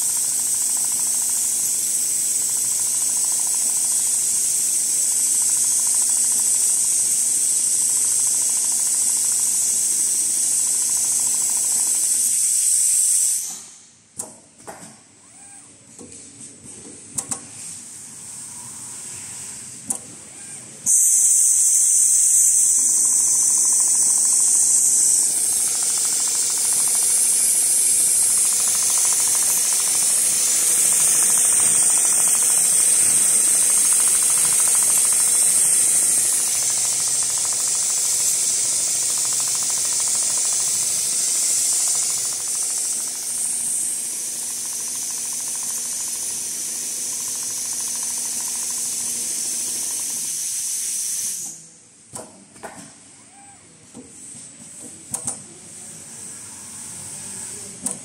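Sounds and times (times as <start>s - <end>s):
sewing machine motor hum: 0.0s - 12.7s, 19.6s - 51.5s, 55.7s - 58.0s
loud steady hiss: 20.9s - 51.7s.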